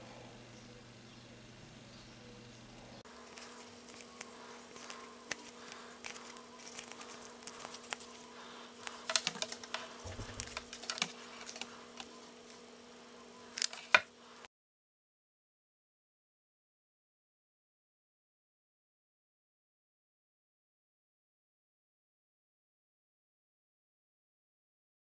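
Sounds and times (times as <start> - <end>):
faint steady hum: 0.0 - 14.5
ribbon rustling and crinkling: 3.2 - 11.8.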